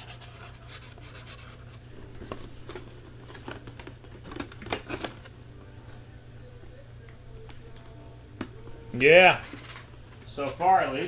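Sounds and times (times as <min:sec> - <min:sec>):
card packaging rustling: 0:00.0 - 0:05.4
steady low hum: 0:00.0 - 0:11.0.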